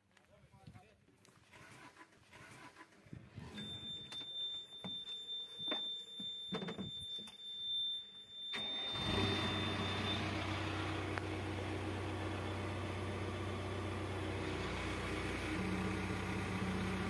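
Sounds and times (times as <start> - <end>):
diesel engine starting and idling: 1.4 - 4.0, 8.4 - 17.0
high-pitched warning tone: 3.4 - 10.7.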